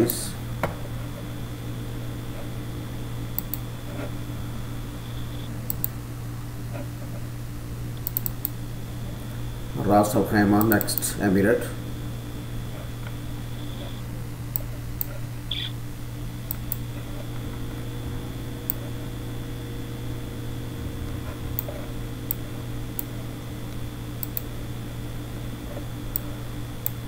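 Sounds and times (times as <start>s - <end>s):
low room hum: 0.0s - 27.0s
computer mouse clicks: 3.3s - 3.7s, 5.3s - 6.0s, 8.0s - 8.6s, 10.6s - 11.1s, 13.7s - 15.7s, 18.6s - 18.8s, 23.7s - 24.5s, 26.1s - 27.0s.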